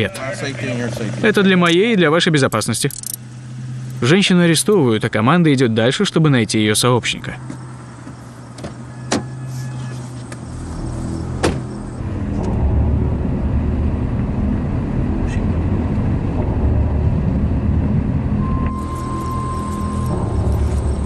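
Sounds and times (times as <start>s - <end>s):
car driving off: 3.0s - 21.0s
car door shutting: 7.5s - 10.4s, 11.3s - 11.8s.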